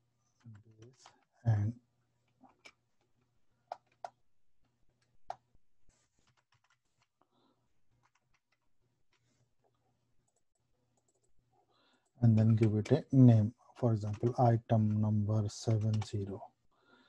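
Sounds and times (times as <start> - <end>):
computer keyboard keystrokes: 6.2 - 7.1, 8.0 - 8.6, 15.8 - 16.1.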